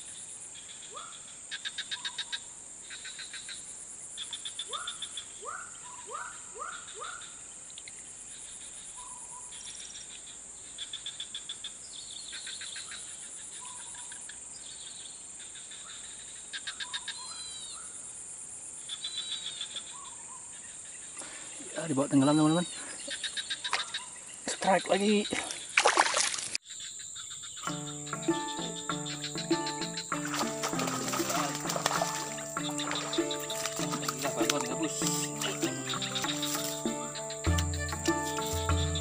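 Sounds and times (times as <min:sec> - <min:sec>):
high insect hum: 0:26.7 - 0:39.0
rapid pulsed chirping: 0:27.3 - 0:39.0.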